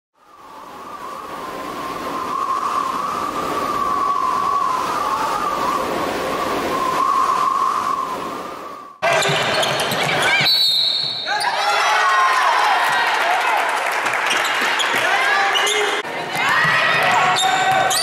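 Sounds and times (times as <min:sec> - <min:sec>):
roaring howling wind: 0:00.2 - 0:09.0
wavering whistle: 0:00.2 - 0:09.0, 0:10.4 - 0:11.4.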